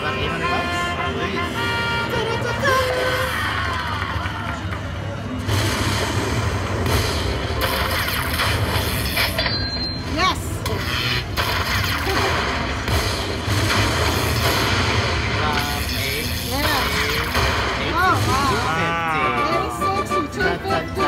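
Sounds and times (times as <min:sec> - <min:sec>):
slot machine win sounds: 0:05.4 - 0:21.0.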